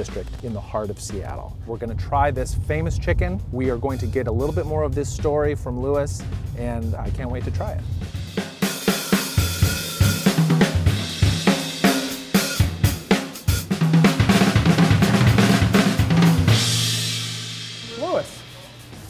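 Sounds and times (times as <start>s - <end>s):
upbeat instrumental music: 0.0s - 19.0s
cymbal wash: 6.2s - 13.7s, 14.4s - 19.0s.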